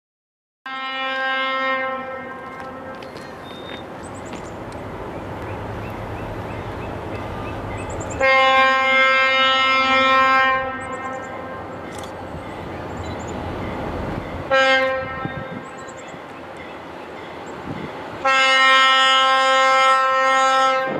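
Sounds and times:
locomotive air horn blasts: 0.7 - 3.0, 8.2 - 11.7, 14.4 - 15.8, 18.2 - 20.9
train low rumble: 1.0 - 20.9.

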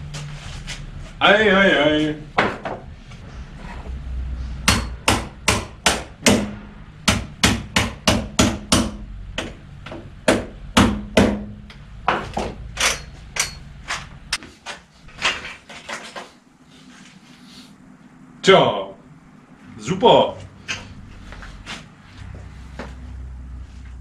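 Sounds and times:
hammer striking metal: 4.6 - 13.7.

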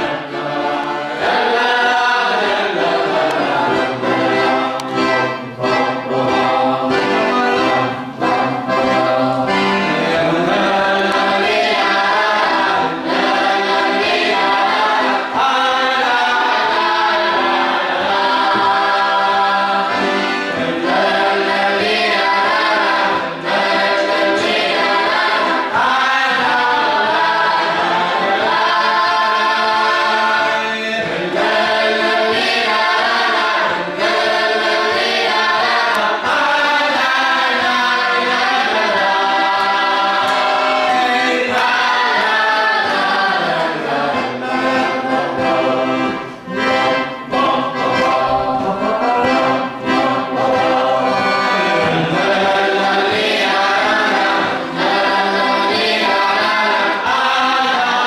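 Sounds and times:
accordion: 0.0 - 58.0
boys' choir singing a march: 0.0 - 58.0.

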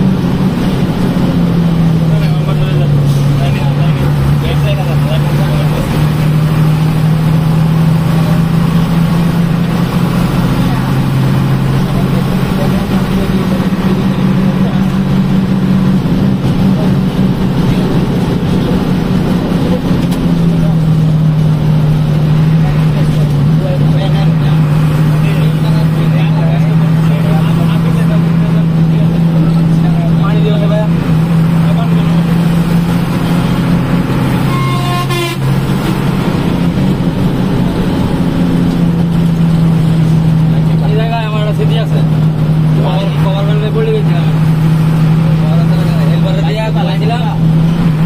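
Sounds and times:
bus engine drone: 0.0 - 48.0
vehicle horn: 34.3 - 35.7.

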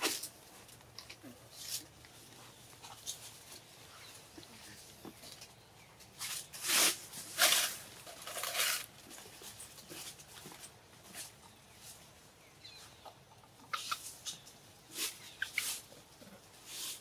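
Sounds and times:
faint monkey sounds: 11.0 - 17.0.

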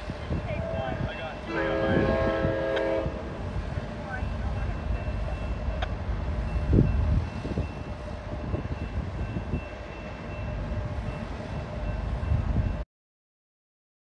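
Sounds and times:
train low rumble: 0.0 - 12.8.

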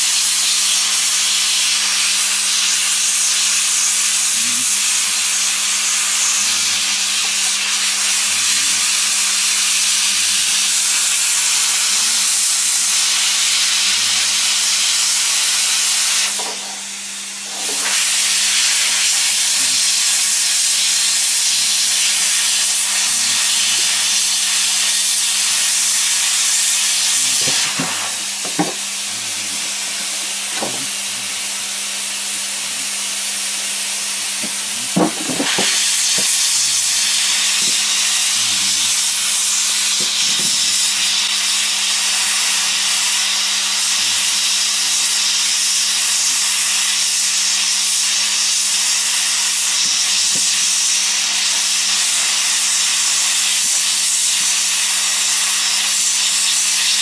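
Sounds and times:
hot-air welding gun hissing: 0.0 - 57.0
steady low hum: 22.9 - 39.5.

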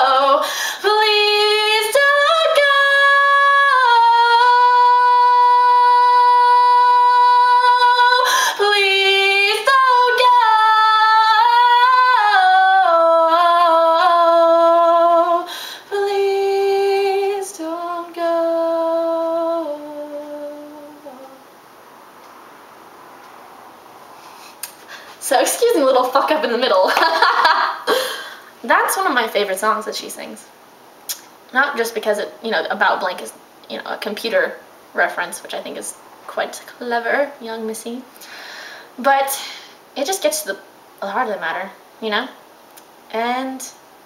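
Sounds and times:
woman singing a cappella: 0.0 - 21.5.

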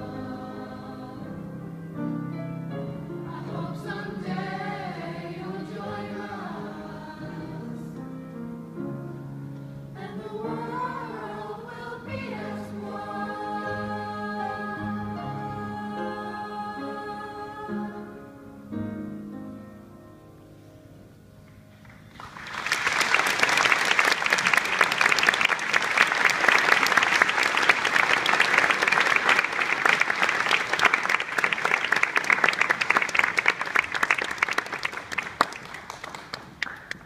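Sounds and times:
audience applauding: 21.9 - 37.0.

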